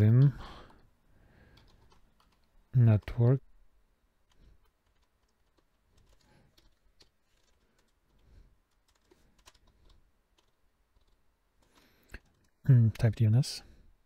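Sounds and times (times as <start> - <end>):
keyboard keystrokes: 4.3 - 12.5.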